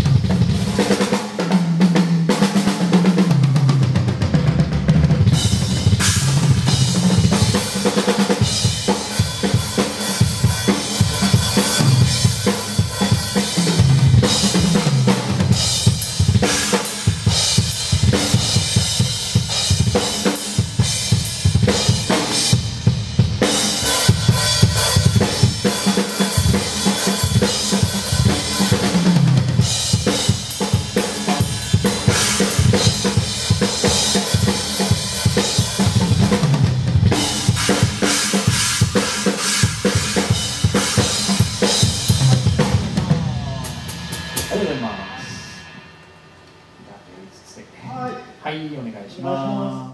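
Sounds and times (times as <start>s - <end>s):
drum kit played fast: 0.0s - 47.2s
tom fills: 41.6s - 47.7s.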